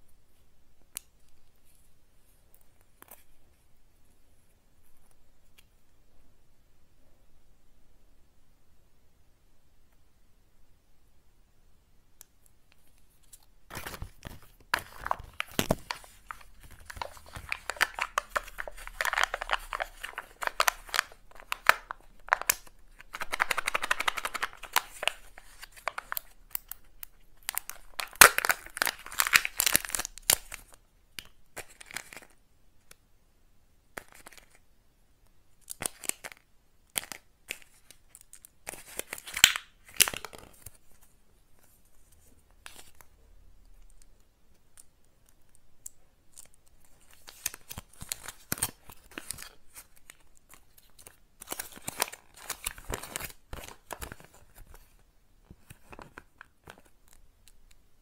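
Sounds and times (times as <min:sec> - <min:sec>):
packaging crinkling: 0:13.2 - 0:30.8, 0:37.0 - 0:41.0, 0:46.4 - 0:55.0.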